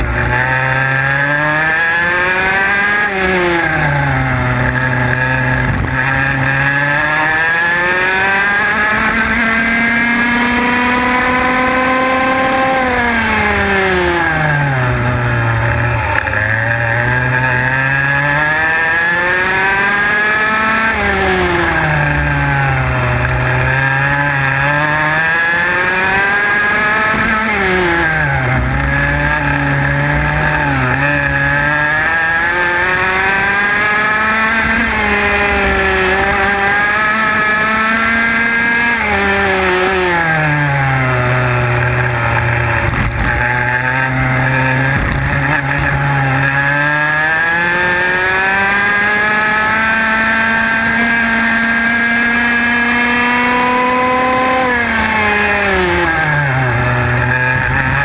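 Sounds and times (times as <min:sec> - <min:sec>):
kart engine revving: 0:00.0 - 0:58.0.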